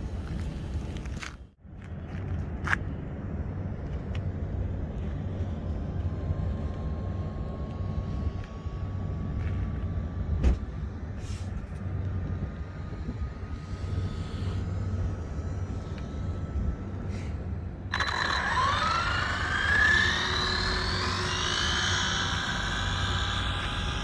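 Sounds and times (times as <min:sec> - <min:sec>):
low outdoor rumble: 0:00.0 - 0:24.0
rc car electric motor whining: 0:13.0 - 0:17.1, 0:17.8 - 0:24.0.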